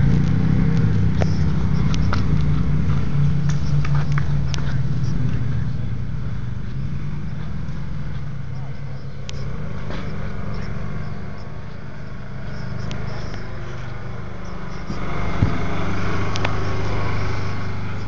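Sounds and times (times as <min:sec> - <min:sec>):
engine idling: 0:00.0 - 0:18.0.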